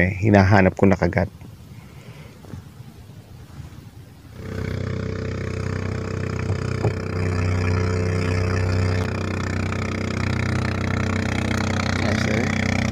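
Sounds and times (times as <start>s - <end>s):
small boat engine running: 4.3s - 12.9s.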